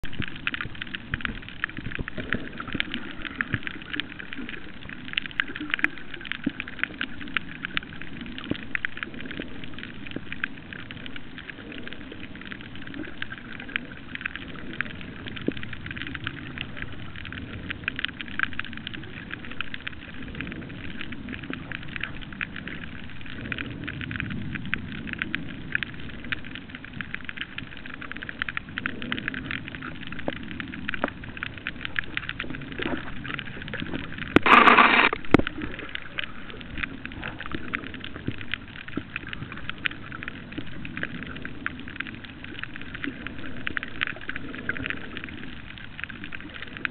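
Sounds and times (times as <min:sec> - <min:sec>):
crackle of tiny clicks underwater: 0:00.0 - 0:46.9.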